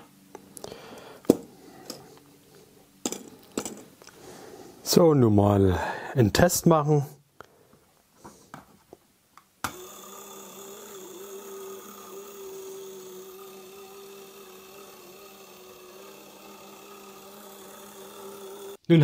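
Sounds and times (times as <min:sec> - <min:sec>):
small electric motor running: 0:09.7 - 0:18.9.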